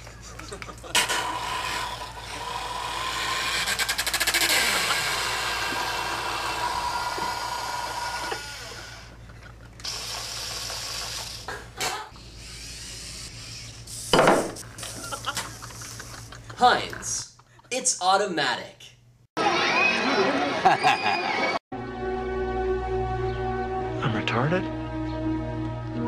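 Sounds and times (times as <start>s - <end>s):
small electric motor and gears whirring: 0.9s - 9.2s, 9.8s - 15.2s.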